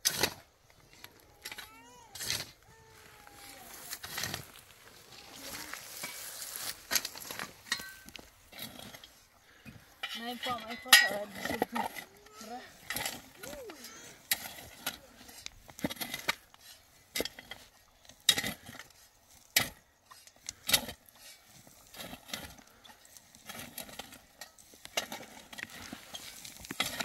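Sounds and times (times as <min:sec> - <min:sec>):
knocks clinks and scrapes: 0:05.4 - 0:27.0.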